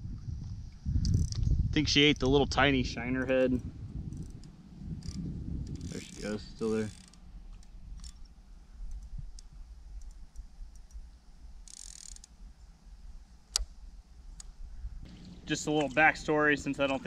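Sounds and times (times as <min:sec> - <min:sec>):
low wind rumble: 0:00.0 - 0:11.7, 0:12.3 - 0:17.0
fishing reel clicks: 0:04.1 - 0:08.3, 0:11.6 - 0:12.3.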